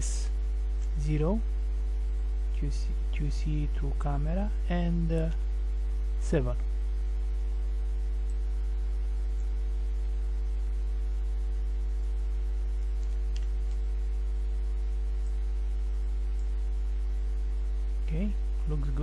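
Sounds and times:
electrical mains hum: 0:00.0 - 0:19.0
faint click: 0:12.8 - 0:13.8.

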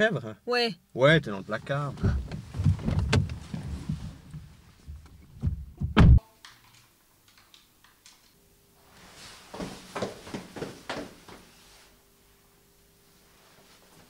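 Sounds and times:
rustling movement in a car: 0:01.2 - 0:06.2
car door slamming shut: 0:02.0 - 0:03.5, 0:05.4 - 0:06.2.

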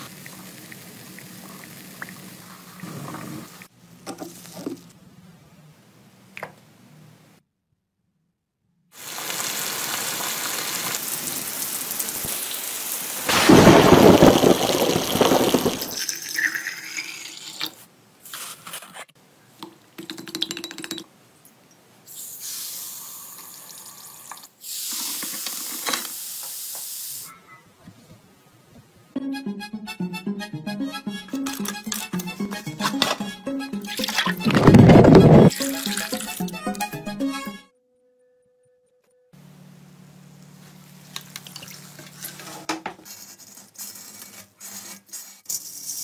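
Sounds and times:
rain falling: 0:09.0 - 0:16.0
bubbles fizzing in a jar: 0:14.0 - 0:17.6
water splashing into a funnel: 0:35.5 - 0:36.5.

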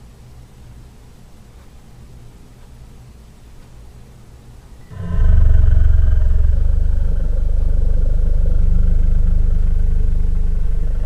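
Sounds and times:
deep dinosaur growl: 0:04.9 - 0:11.0.

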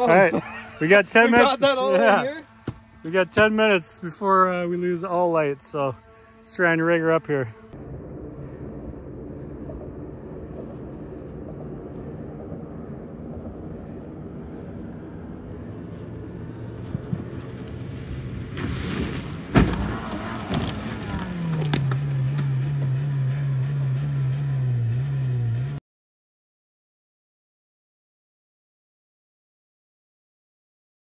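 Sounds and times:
crashing and scraping into brush: 0:18.5 - 0:22.6.

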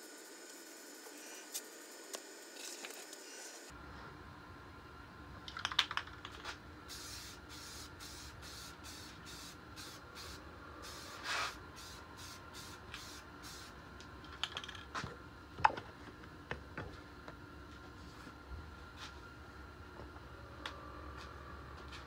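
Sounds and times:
spray paint can hissing: 0:06.4 - 0:13.7.

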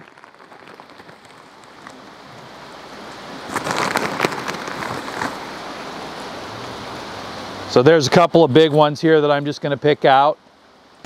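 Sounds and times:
wood chips rattling: 0:00.0 - 0:02.2, 0:03.5 - 0:05.4
plastic bag crinkling: 0:00.0 - 0:02.5, 0:03.5 - 0:05.4.

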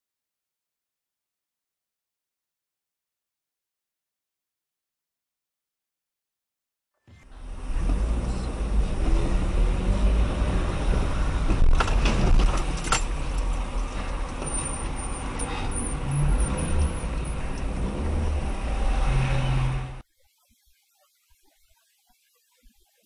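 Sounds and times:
car engine and road noise: 0:07.1 - 0:20.0.

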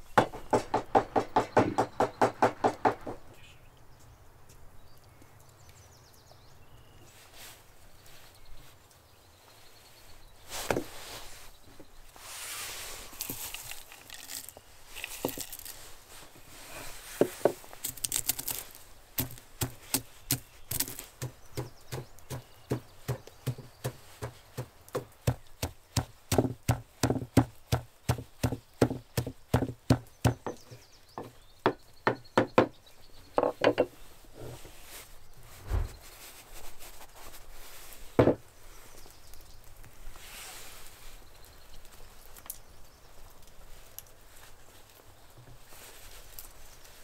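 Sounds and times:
wooden pestle pounding in mortar: 0:19.2 - 0:30.6.

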